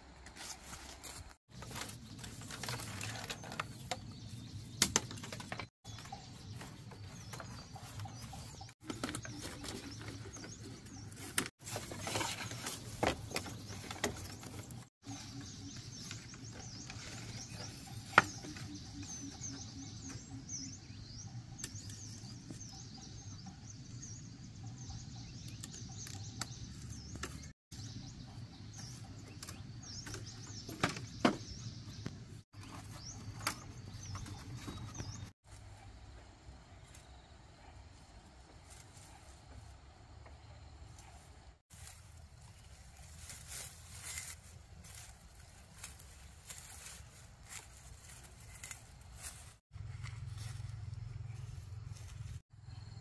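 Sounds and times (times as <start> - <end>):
bamboo strips rustling and clicking: 0.1 - 19.3, 40.9 - 50.7
birds chirping: 1.5 - 53.0.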